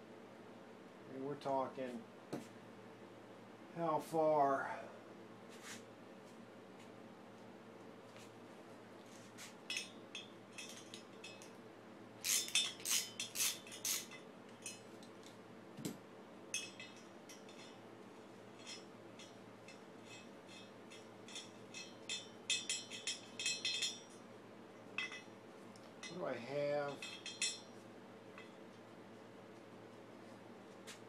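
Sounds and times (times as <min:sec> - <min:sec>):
metal wrench clinking on engine: 0:09.7 - 0:11.5, 0:16.6 - 0:17.8, 0:18.6 - 0:24.2, 0:25.0 - 0:25.3, 0:26.9 - 0:27.8.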